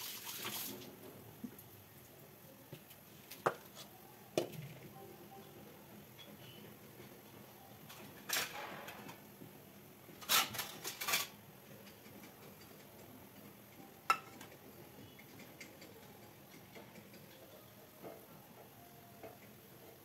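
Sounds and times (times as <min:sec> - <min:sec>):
deep-frying sizzle: 0:00.0 - 0:02.2.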